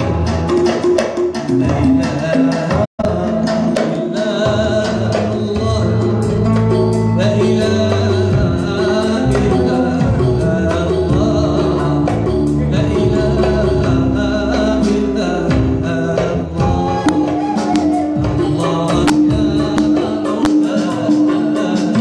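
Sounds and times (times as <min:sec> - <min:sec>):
light percussion: 0:00.0 - 0:22.0
man singing into microphone: 0:00.0 - 0:22.0
oud flute and keyboard music: 0:00.0 - 0:22.0.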